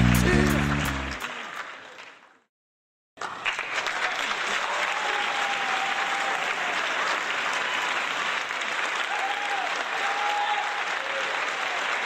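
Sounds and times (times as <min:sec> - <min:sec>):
music track: 0:00.0 - 0:01.3
crowd applause: 0:00.0 - 0:02.4, 0:03.2 - 0:12.0.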